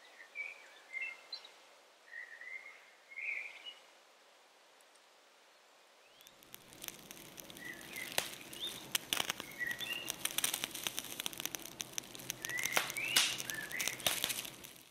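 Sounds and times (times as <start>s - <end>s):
small birds chirping: 6.0s - 14.9s
crackle of sharp clicks: 6.1s - 14.9s.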